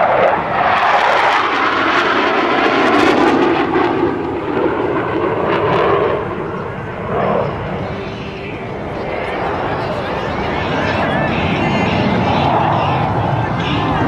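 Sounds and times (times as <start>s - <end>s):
jets flying past: 0.0s - 14.0s.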